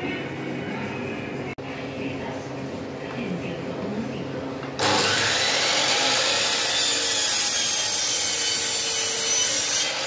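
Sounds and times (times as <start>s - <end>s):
miter saw cutting wood: 4.8s - 10.0s.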